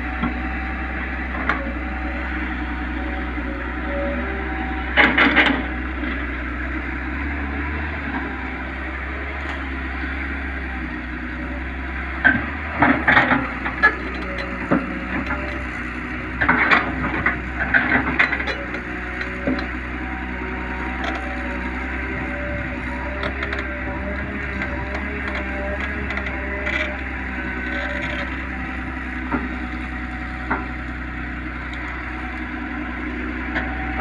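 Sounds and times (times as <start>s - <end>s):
excavator diesel engine running: 0.0s - 34.0s.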